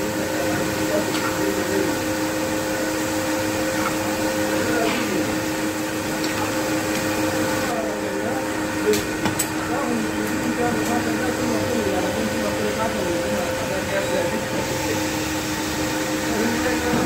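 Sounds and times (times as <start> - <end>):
oil sizzling: 0.0 - 9.2
steady hum: 0.0 - 17.0.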